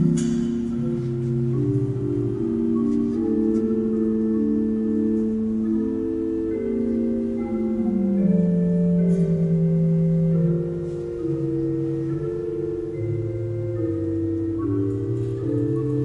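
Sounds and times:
pipe organ chords: 0:00.0 - 0:16.0.

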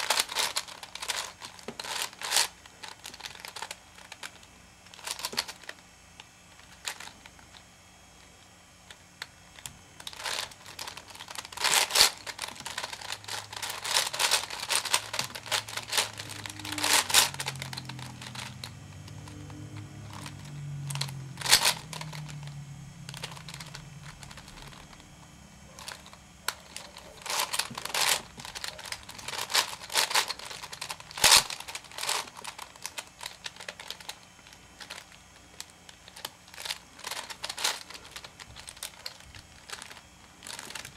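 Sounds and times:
puzzle cube clicking: 0:10.2 - 0:22.4.

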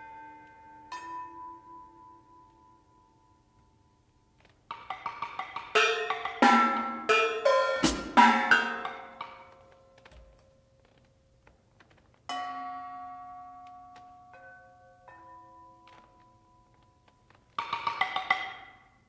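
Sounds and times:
ringing metal percussion: 0:00.0 - 0:03.8, 0:04.8 - 0:09.6, 0:12.3 - 0:17.0
tom hits: 0:05.9 - 0:09.2
quick stick strokes on drums: 0:07.8 - 0:08.9.

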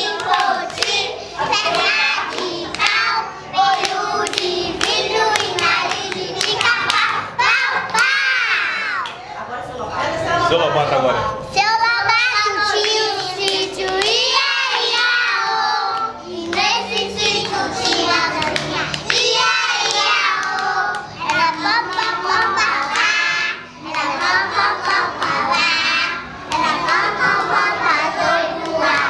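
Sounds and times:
children singing: 0:00.0 - 0:09.0, 0:11.7 - 0:29.0
hand clapping: 0:00.1 - 0:01.0, 0:02.3 - 0:03.0, 0:03.7 - 0:08.2, 0:12.8 - 0:15.1, 0:15.9 - 0:23.2.

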